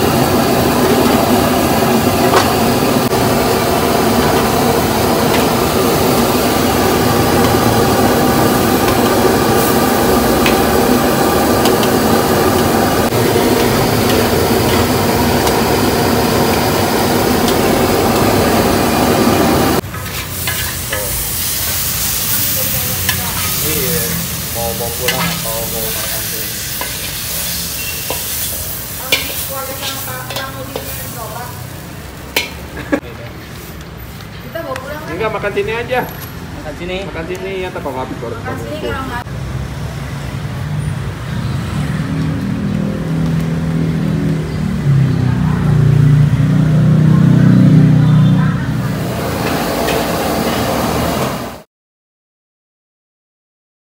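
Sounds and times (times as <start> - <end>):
vehicle engine droning: 0.0 - 19.9, 38.7 - 51.5
noodles sizzling in a wok: 0.0 - 33.7, 48.8 - 51.6
traffic hiss: 5.2 - 42.3
spatula clanking against wok: 19.8 - 23.7, 25.0 - 31.1, 32.4 - 32.8
metal spatula scraping a wok: 19.8 - 31.8.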